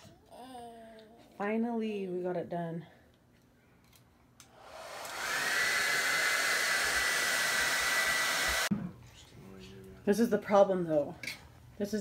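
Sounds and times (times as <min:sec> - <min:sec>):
hair dryer running: 0:04.4 - 0:08.7.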